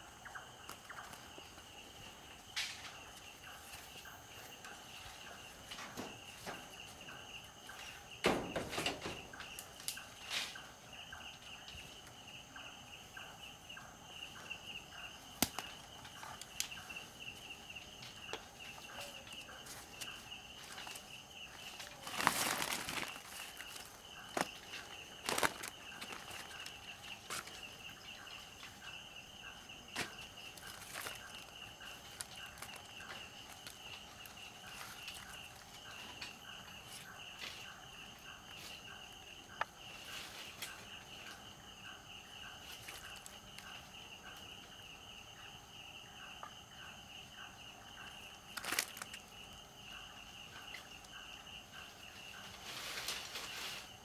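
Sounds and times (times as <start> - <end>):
night insects chirping: 0.0 - 54.0.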